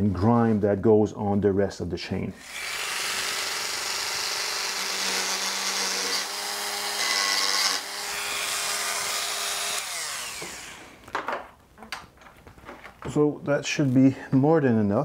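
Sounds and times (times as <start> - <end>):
cutting disc grinding metal: 2.4 - 10.9
rotary tool motor whine: 2.4 - 10.9.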